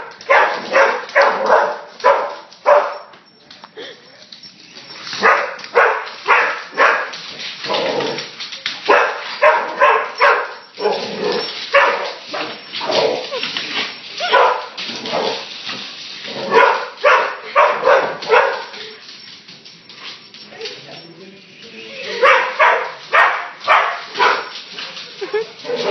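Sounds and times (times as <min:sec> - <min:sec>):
dog barking: 0:00.0 - 0:03.1, 0:05.2 - 0:07.2, 0:08.9 - 0:11.0, 0:11.7 - 0:12.6, 0:14.2 - 0:14.8, 0:16.5 - 0:18.7, 0:22.1 - 0:24.5.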